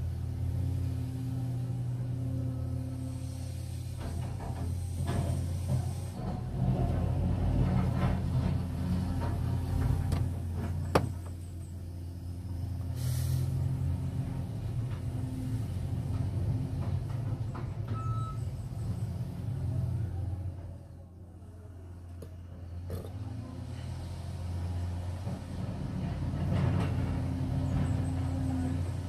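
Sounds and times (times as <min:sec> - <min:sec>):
excavator diesel engine droning: 0:00.0 - 0:29.0
brief hiss: 0:13.0 - 0:13.6.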